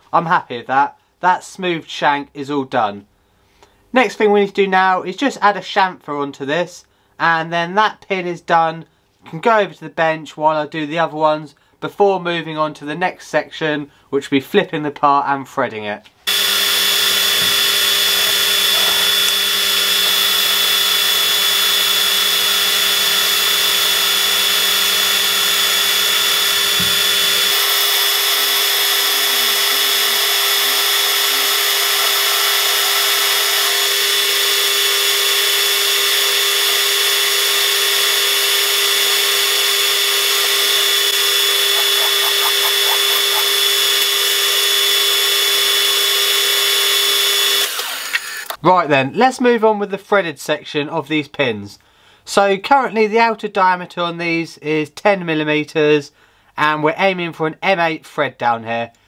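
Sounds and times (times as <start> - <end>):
lathe motor and gear whine: 16.3 - 48.5
high steady tone: 37.8 - 45.6.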